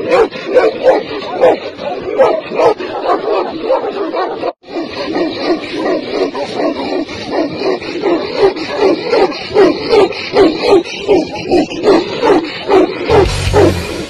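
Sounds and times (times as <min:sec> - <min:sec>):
dog barking: 0:00.0 - 0:13.8
loud rock music: 0:13.1 - 0:14.0.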